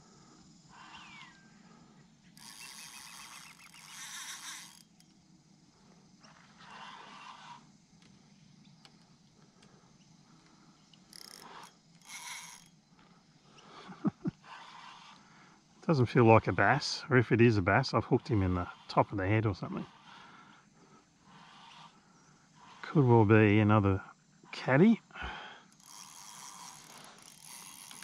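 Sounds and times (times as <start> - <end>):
fishing reel clicking: 0.7 - 5.2, 6.6 - 7.6, 10.4 - 12.8, 14.4 - 15.3, 21.3 - 22.0, 25.6 - 28.0.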